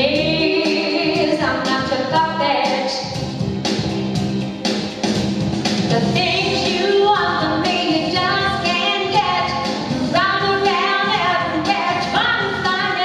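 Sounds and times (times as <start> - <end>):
woman singing through pa: 0.0 - 3.0, 5.9 - 13.0.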